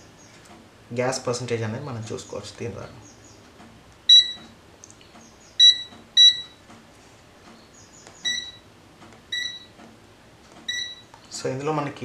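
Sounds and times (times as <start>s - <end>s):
short electronic beeps: 4.1s - 4.4s, 5.6s - 6.6s, 8.2s - 8.6s, 9.3s - 9.7s, 10.7s - 11.1s.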